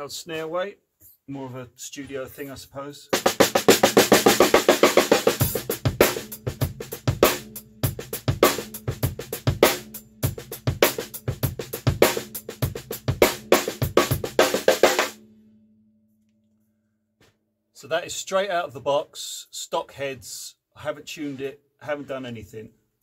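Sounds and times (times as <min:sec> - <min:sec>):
snare drum fills: 0:03.2 - 0:07.4
bass drum: 0:03.2 - 0:15.2
low drum ring: 0:03.4 - 0:15.3.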